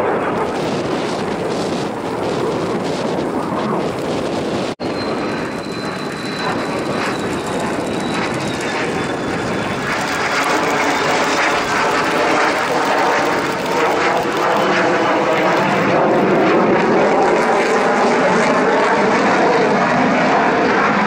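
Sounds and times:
jet engine rushing: 0.0s - 21.0s
faint high whine falling in pitch: 4.8s - 11.0s.

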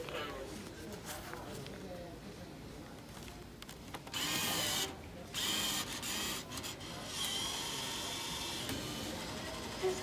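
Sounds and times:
bill acceptor motor whirring: 4.1s - 10.0s.

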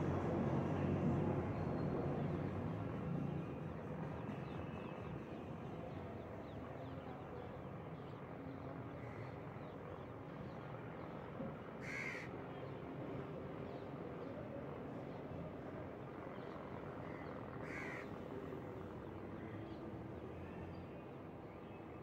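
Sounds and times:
crow cawing: 11.8s - 12.3s, 17.6s - 18.1s.

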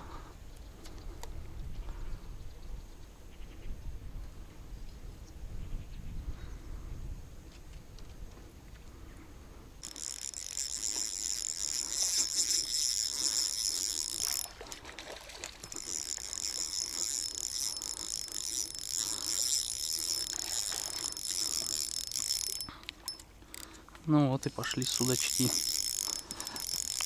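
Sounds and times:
fishing reel gears whirring: 9.8s - 23.8s, 24.6s - 27.0s.

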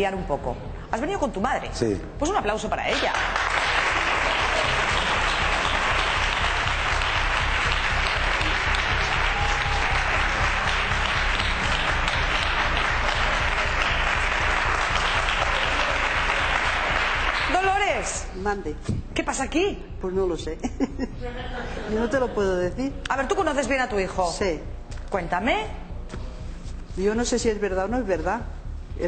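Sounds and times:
background music beat: 0.8s - 29.0s
audience applauding: 2.9s - 18.3s.

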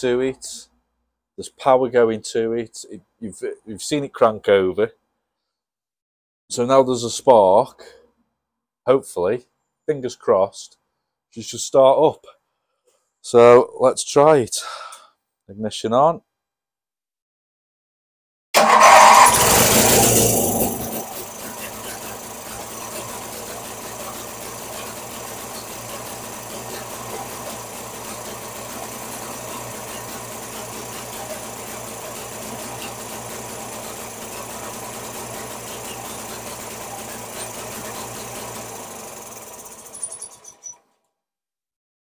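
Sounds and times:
small engine starting and idling: 18.6s - 40.9s.

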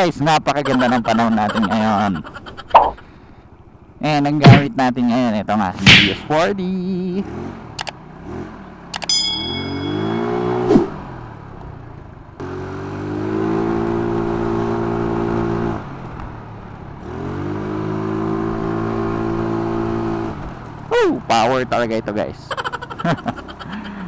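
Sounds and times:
sharp clicks: 7.8s - 8.0s, 8.9s - 9.1s
short chime: 9.1s - 10.7s.

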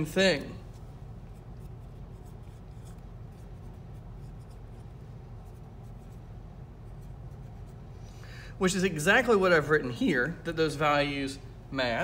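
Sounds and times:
low hum: 0.0s - 12.0s
marker scratching on whiteboard: 0.6s - 7.9s.

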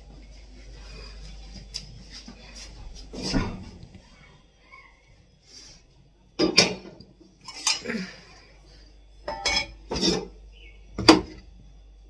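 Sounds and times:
utensils and dishes clattering: 6.4s - 8.1s, 9.2s - 10.4s.

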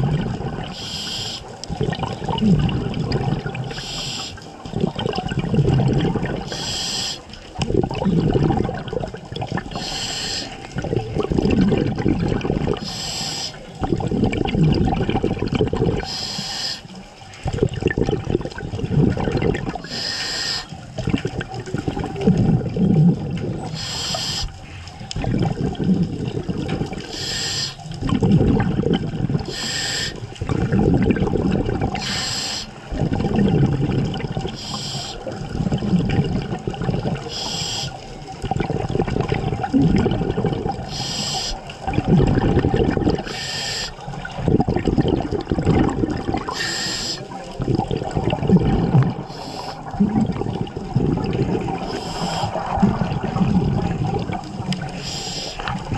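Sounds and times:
exhale bubbling underwater: 0.0s - 55.9s
regulator inhale hiss: 0.7s - 1.5s, 3.7s - 4.5s, 6.5s - 7.3s, 9.7s - 10.6s, 12.8s - 13.6s, 16.0s - 17.0s, 19.8s - 20.8s, 23.8s - 24.9s, 27.1s - 27.9s, 29.5s - 30.2s, 32.0s - 32.8s, 34.5s - 35.3s, 37.2s - 38.1s, 40.9s - 41.7s, 43.2s - 44.0s, 46.5s - 47.4s, 49.3s - 49.9s, 51.8s - 52.8s, 54.9s - 55.8s.

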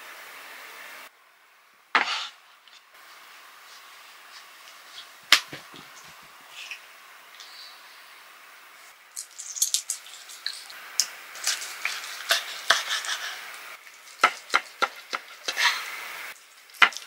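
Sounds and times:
tongs scraping and clicking: 9.2s - 13.0s.

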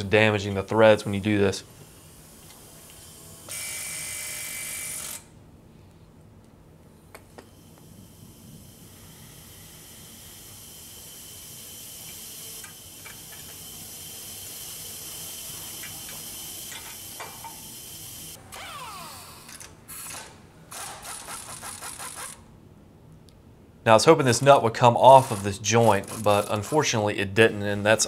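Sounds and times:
pneumatic tool chattering: 18.6s - 22.4s, 25.1s - 26.9s.

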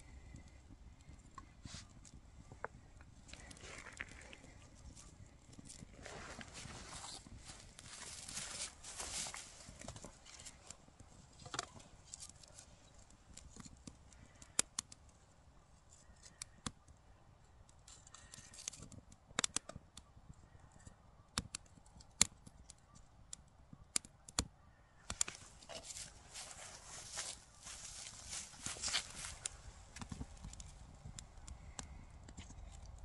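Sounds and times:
faint rustling: 1.4s - 13.1s, 25.2s - 30.8s
wood snapping and cracking: 5.4s - 15.1s, 17.8s - 20.0s, 25.1s - 26.5s.

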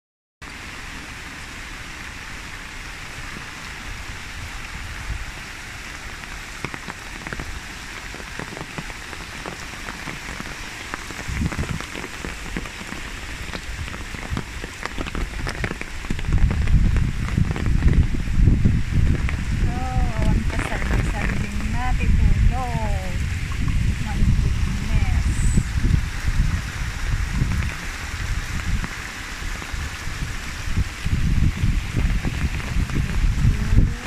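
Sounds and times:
rain falling: 0.4s - 34.0s
low rumble: 16.4s - 28.9s.

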